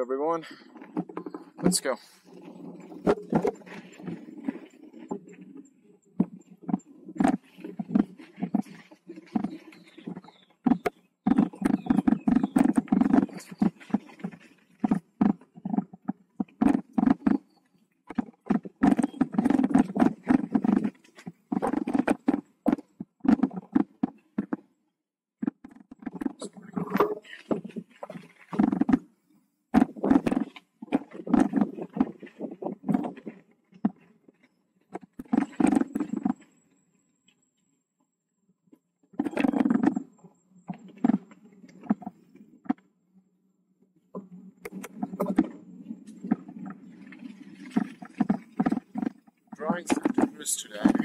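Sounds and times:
bike rattling: 0.0 - 24.6, 44.6 - 51.0
bike tyres knocking over bumps: 6.2 - 24.6.

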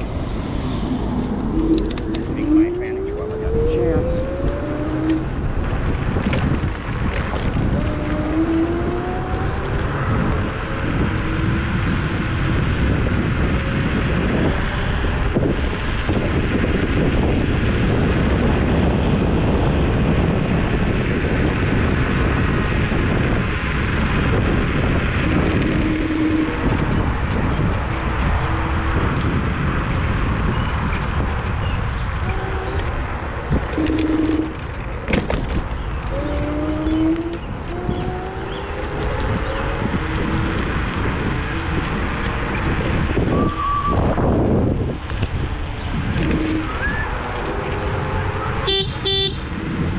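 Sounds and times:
faint whine rising in pitch: 0.0 - 5.6
electric scooter road noise: 0.0 - 49.9
wind rushing over microphone: 0.0 - 49.9.

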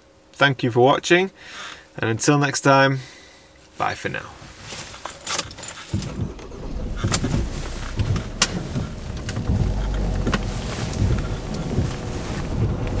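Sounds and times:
engine low rumble: 5.0 - 13.0.

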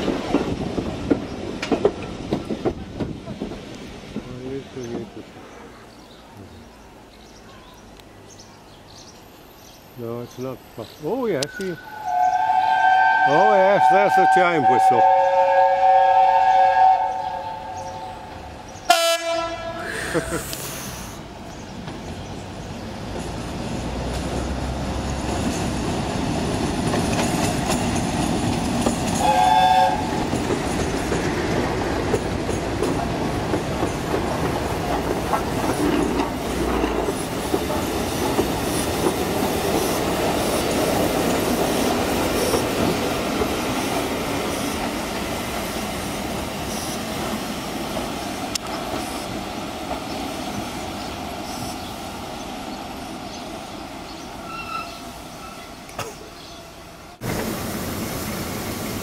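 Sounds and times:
wheels clattering over rail joints: 0.0 - 5.2, 23.0 - 46.6
train whistle blast: 11.6 - 18.2, 18.9 - 19.8, 29.2 - 30.1.

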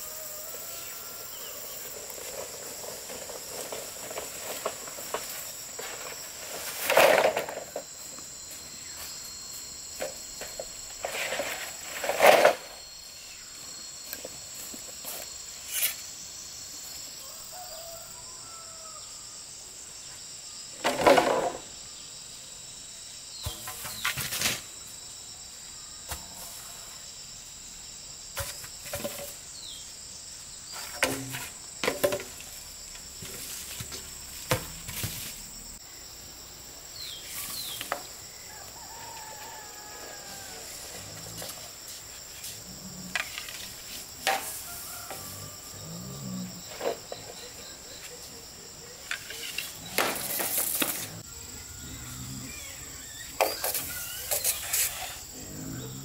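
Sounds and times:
high-pitched insect drone: 0.0 - 20.8, 21.4 - 56.0
sharp knocks and rustles: 23.4 - 24.7, 28.3 - 29.4, 30.7 - 35.5.

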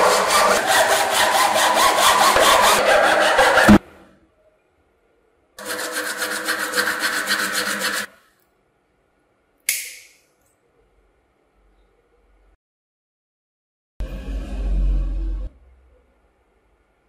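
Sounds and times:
plastic ring rubbed on sandpaper: 5.6 - 8.1.

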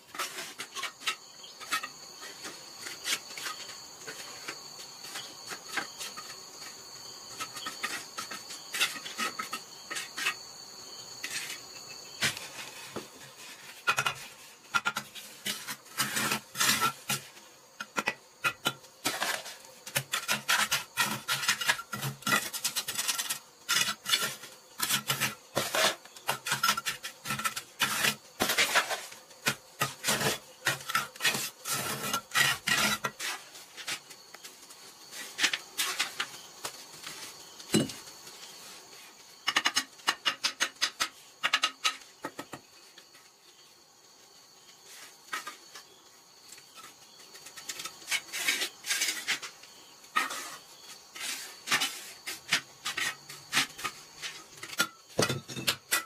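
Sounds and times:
insect droning: 0.0 - 56.0
trowel scraping wet mortar: 12.2 - 34.1, 47.5 - 49.6
small knocks: 37.7 - 38.0.

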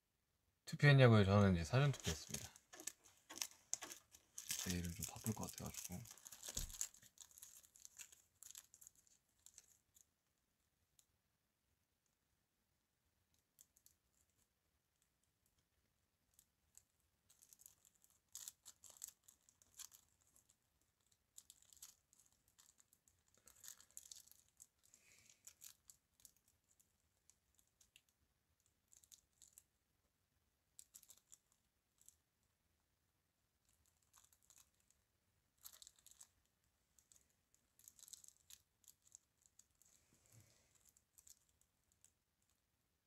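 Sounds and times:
faint clicks and rustling: 1.8 - 10.1.

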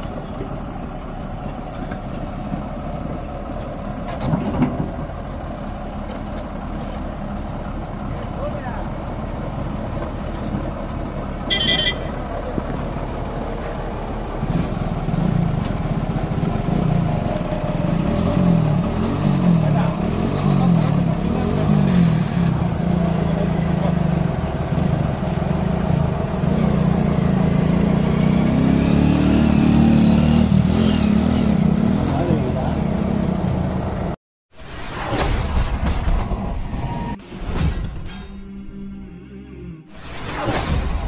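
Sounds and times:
excavator diesel engine running: 0.0 - 27.9
motorcycle engine revving: 14.4 - 34.2.

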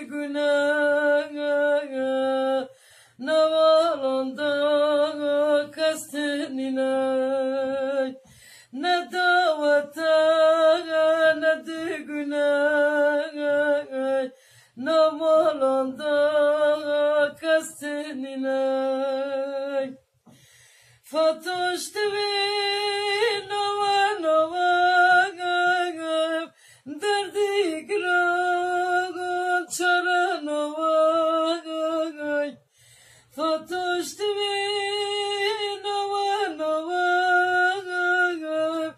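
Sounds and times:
person singing a lament unaccompanied: 0.0 - 20.0, 33.4 - 38.9.

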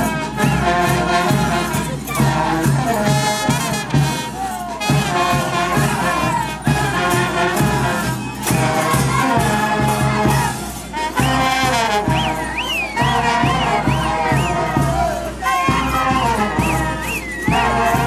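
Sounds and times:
trumpets playing melody: 0.0 - 18.0
high wavering whistle: 12.0 - 14.8, 16.1 - 18.0.

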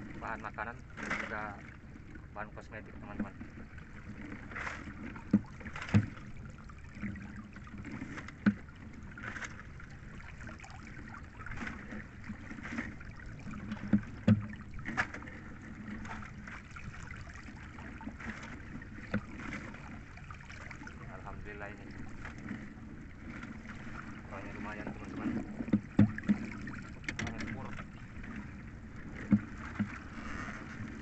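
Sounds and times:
water splashing and dripping: 4.2 - 22.7
sharp knocks: 13.9 - 14.5, 25.7 - 26.4.

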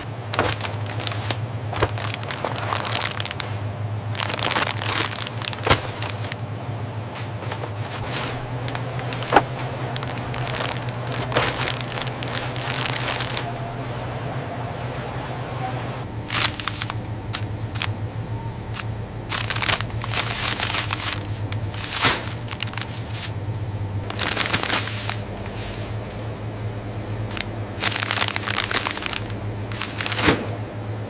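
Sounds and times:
paper and cardboard crinkling: 0.0 - 3.5, 4.2 - 6.4, 7.3 - 13.5, 16.2 - 18.0, 18.6 - 23.4, 24.0 - 26.0, 27.3 - 30.5
steady low hum: 0.0 - 31.0.

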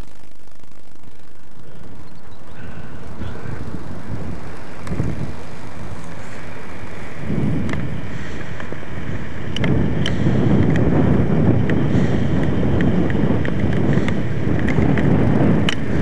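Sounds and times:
wind buffeting microphone: 1.7 - 16.0
faint clicks: 4.6 - 7.0, 7.6 - 8.8, 9.5 - 10.9, 12.4 - 15.9.

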